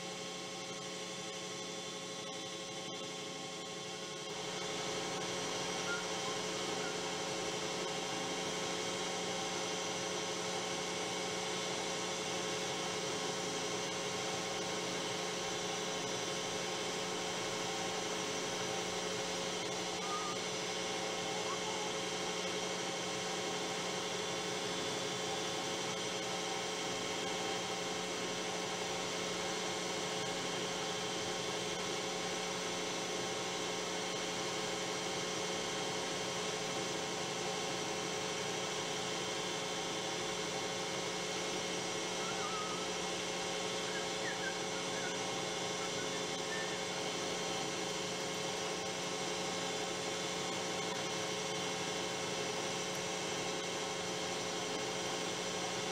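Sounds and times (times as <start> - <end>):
faint short squeaks: 42.2 - 42.9.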